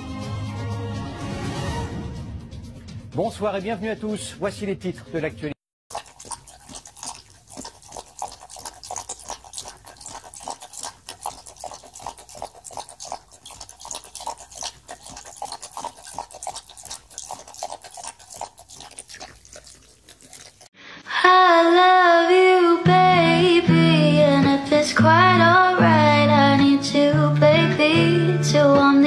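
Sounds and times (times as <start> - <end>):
rabbit lapping water: 5.9 - 20.7.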